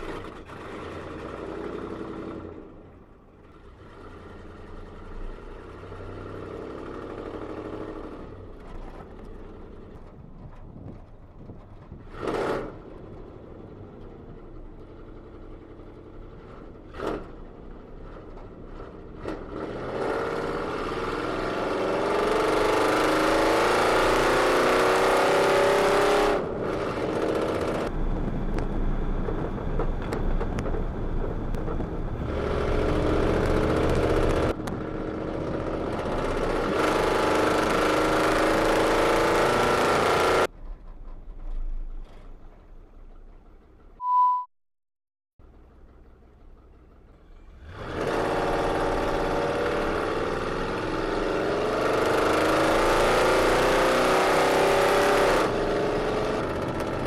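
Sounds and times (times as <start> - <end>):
truck engine revving: 18.9 - 27.9, 30.5 - 40.5, 47.4 - 57.0
exhaust crackling and popping: 26.5 - 38.8.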